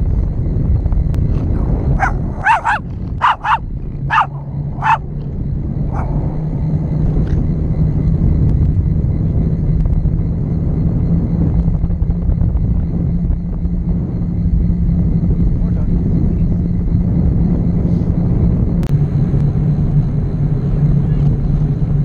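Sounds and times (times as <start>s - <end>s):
low steady hum: 0.0s - 22.0s
wind on microphone: 0.0s - 22.0s
small dog yipping: 2.0s - 5.0s.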